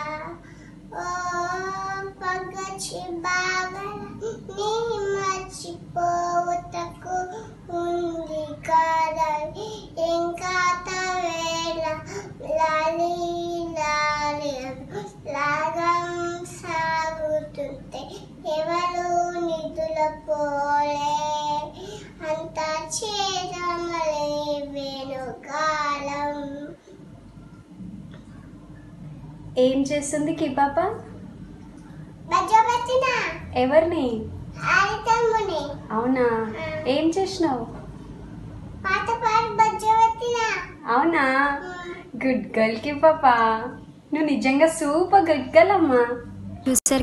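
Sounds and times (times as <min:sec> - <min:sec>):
girl singing a lullaby: 0:00.0 - 0:26.9, 0:41.6 - 0:42.1.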